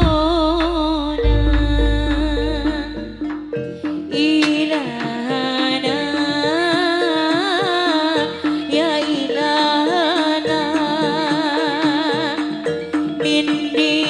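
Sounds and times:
repeated metallic note: 0.0 - 3.7
drum strokes: 0.0 - 3.9
gamelan melody: 0.0 - 14.0.

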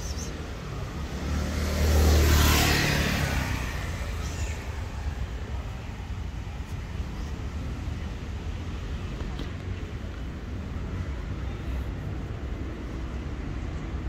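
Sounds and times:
vehicle driving past: 0.8 - 5.0.

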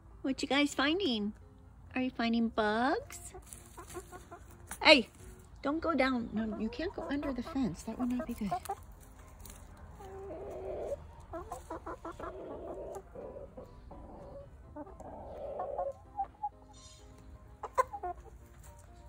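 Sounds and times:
chickens clucking: 2.6 - 19.0.

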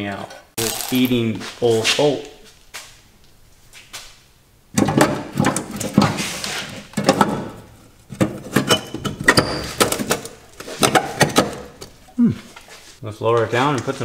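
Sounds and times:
metal parts knocking and rattling: 4.8 - 12.0.

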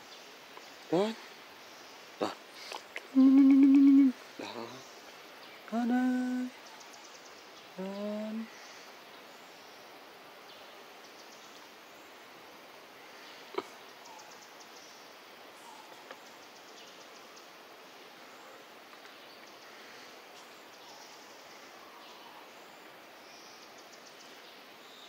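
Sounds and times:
faint steady hiss: 0.0 - 25.0
faint high chirping: 2.2 - 4.8.

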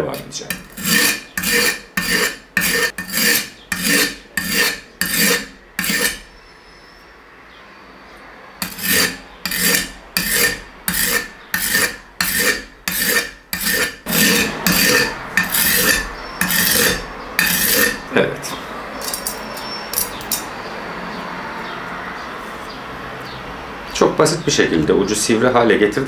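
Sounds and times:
knife grinding on whetstone: 0.0 - 6.3, 8.6 - 18.1, 19.0 - 20.5.

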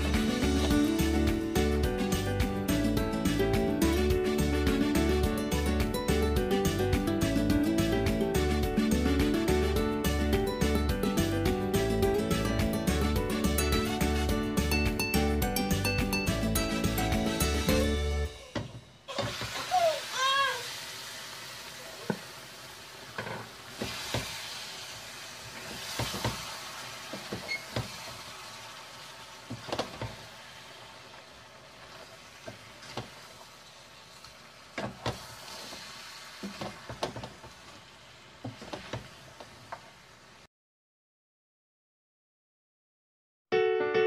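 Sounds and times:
food sizzling in a pot: 0.0 - 3.3, 16.2 - 40.5.

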